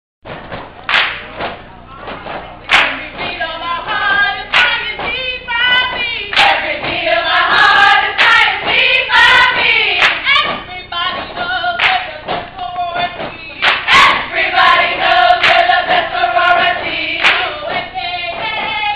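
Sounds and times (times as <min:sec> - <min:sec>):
sharp hand claps: 0:00.8 - 0:03.3, 0:04.5 - 0:05.1, 0:06.3 - 0:06.9, 0:08.2 - 0:08.8, 0:09.6 - 0:10.7, 0:11.8 - 0:12.4, 0:13.6 - 0:14.2, 0:15.4 - 0:16.0, 0:17.2 - 0:17.8
group chant-like singing: 0:02.7 - 0:11.9, 0:13.0 - 0:18.9.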